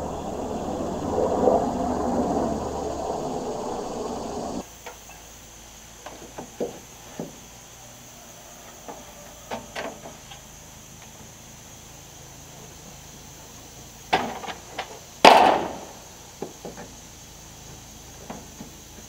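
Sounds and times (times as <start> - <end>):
helicopter passing overhead: 0.0 - 4.6.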